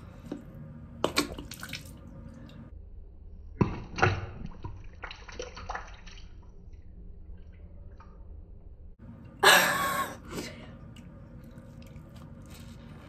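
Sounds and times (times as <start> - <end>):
water splashing and dripping: 1.0 - 2.7, 3.6 - 8.5.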